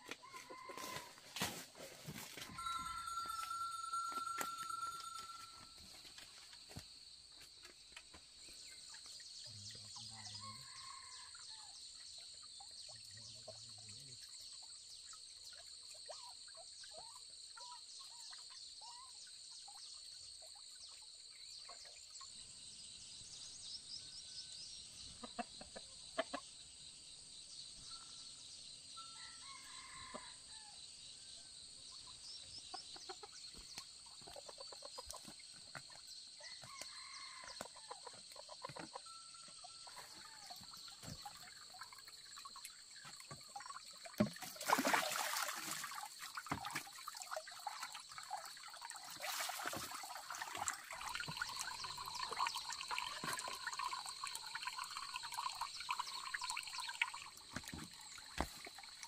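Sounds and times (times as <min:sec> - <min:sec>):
rooster crowing: 0:00.0 - 0:01.2
chickens clucking: 0:25.1 - 0:26.5, 0:32.6 - 0:36.0, 0:37.6 - 0:39.1.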